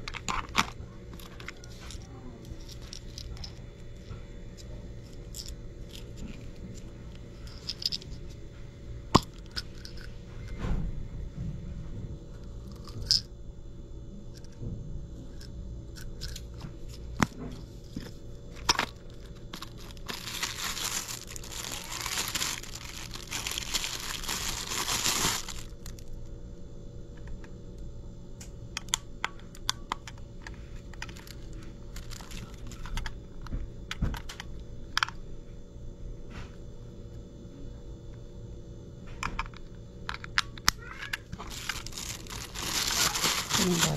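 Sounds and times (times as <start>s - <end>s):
plastic bag crinkling: 18.6s - 26.1s, 31.0s - 33.0s, 41.4s - 43.9s.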